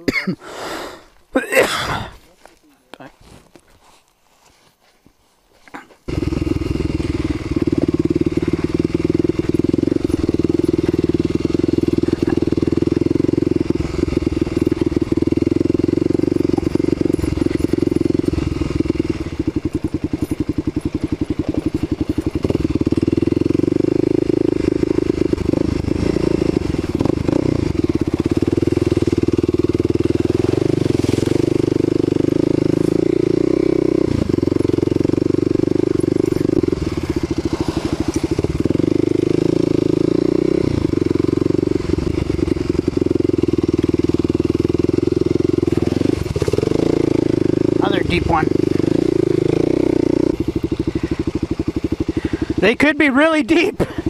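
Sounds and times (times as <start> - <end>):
motorcycle engine running: 6.1 - 54.0.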